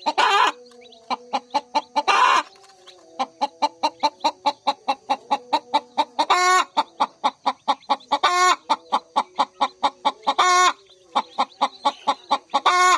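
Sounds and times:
chicken harsh drawn-out call: 0.0 - 0.6
chickens clucking: 0.0 - 12.9.

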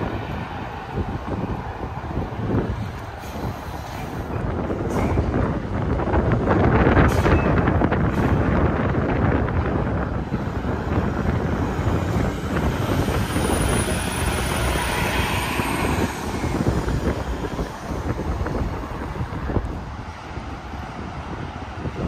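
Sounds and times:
wind buffeting microphone: 0.0 - 22.0
vehicle passing: 10.3 - 21.9.

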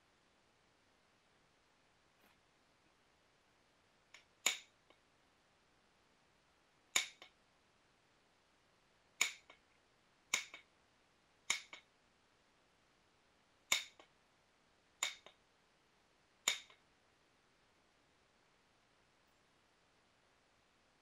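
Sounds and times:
stone knapping clicks: 4.2 - 5.0, 7.0 - 7.4, 9.2 - 9.6, 10.3 - 10.7, 11.5 - 11.9, 13.7 - 14.1, 15.0 - 15.4, 16.5 - 16.8
fainter click: 16.5 - 16.8.

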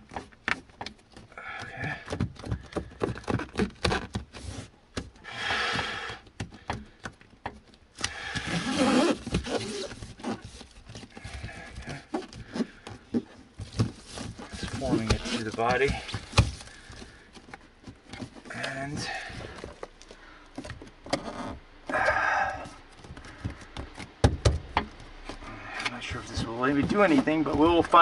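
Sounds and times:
foil crinkling: 13.6 - 20.1.

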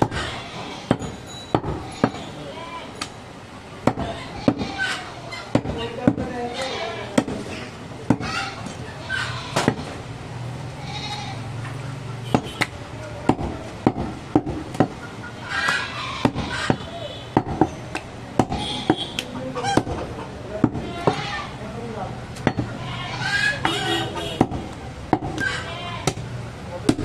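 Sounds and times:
cleaver chopping meat on wood: 0.9 - 2.2, 3.8 - 4.7, 5.5 - 6.3, 7.1 - 8.3, 9.6 - 9.9, 12.3 - 15.0, 15.6 - 21.2, 22.4 - 22.8, 24.4 - 27.0.

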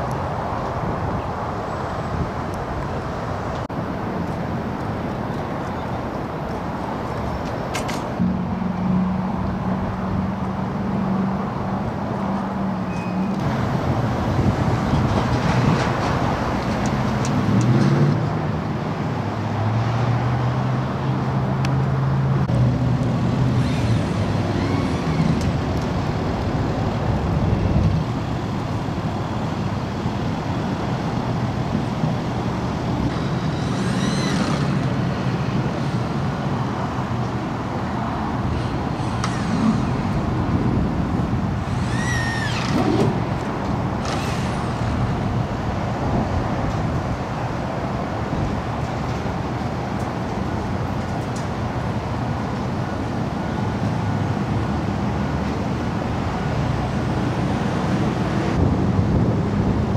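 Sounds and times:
road traffic noise: 0.0 - 59.9
short high squeals: 12.9 - 13.4, 23.6 - 25.4, 33.1 - 34.9, 41.6 - 43.0, 44.0 - 44.9.

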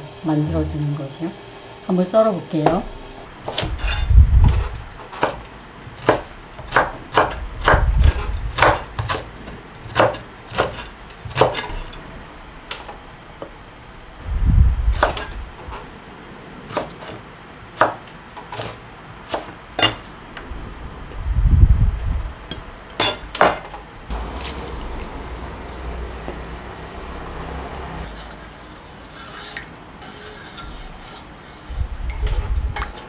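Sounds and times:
knife chopping on wooden board: 6.0 - 9.3, 9.9 - 11.7
wooden spoon stirring in pan: 24.1 - 33.0.

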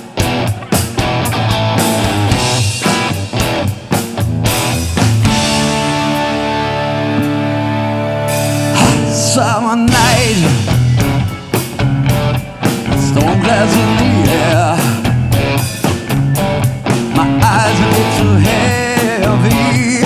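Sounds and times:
drum beat: 0.0 - 7.4, 8.6 - 20.0
electric guitar: 0.0 - 20.0
live rock band playing: 0.0 - 20.0
man singing lead vocal: 8.7 - 10.9, 12.8 - 15.4, 17.0 - 20.0.

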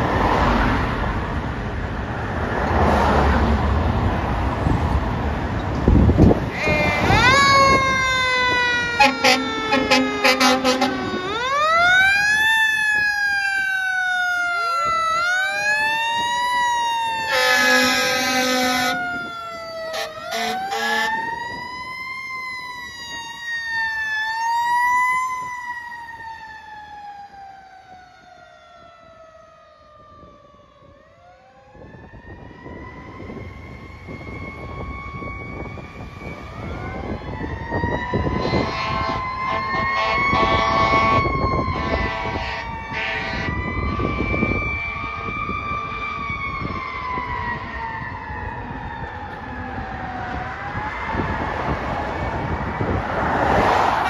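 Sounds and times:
air horn blasts: 6.4 - 7.9, 8.9 - 11.2, 17.3 - 19.1, 19.9 - 21.2, 38.4 - 43.6.

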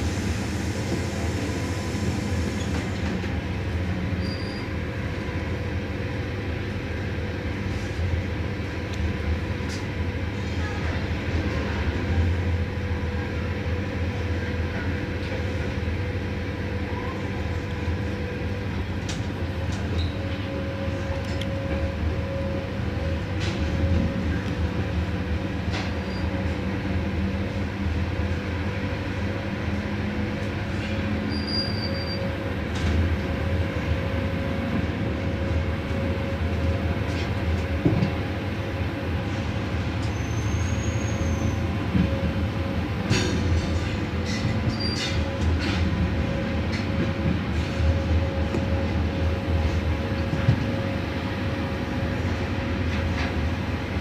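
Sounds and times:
wheels rumbling on rail: 0.0 - 54.0
high wheel squeals: 31.3 - 32.3, 40.1 - 41.6.

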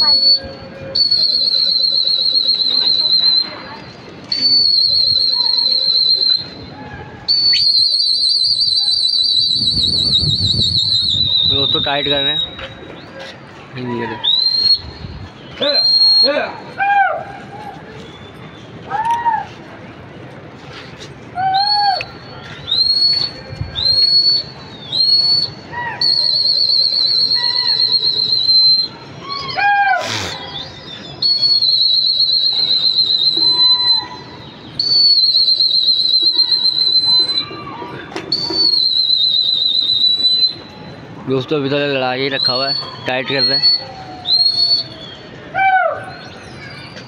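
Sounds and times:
whistle blasts: 0.0 - 13.1, 14.2 - 16.8, 21.4 - 41.2, 42.2 - 47.0.

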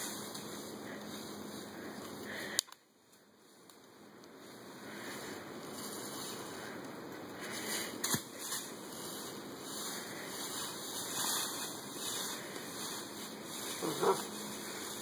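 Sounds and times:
footsteps crunching dry leaves: 7.6 - 15.0.

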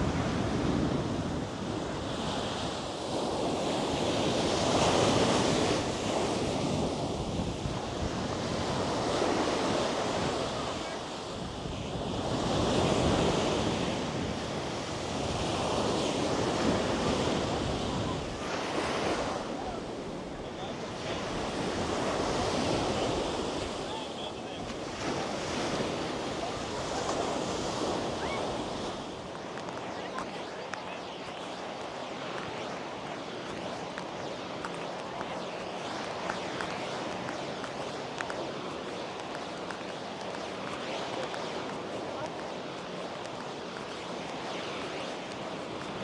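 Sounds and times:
ocean surf breaking on beach: 0.0 - 46.0.

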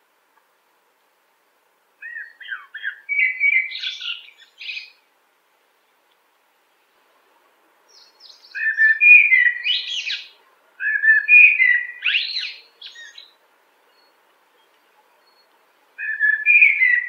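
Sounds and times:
blackbird singing: 2.0 - 5.0, 7.9 - 17.0.

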